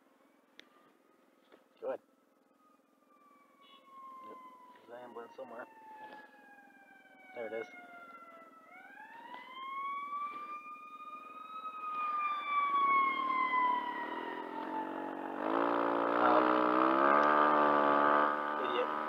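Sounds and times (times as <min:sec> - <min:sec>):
ambulance siren wailing: 0:01.8 - 0:18.6
vehicle engine revving: 0:13.1 - 0:19.0.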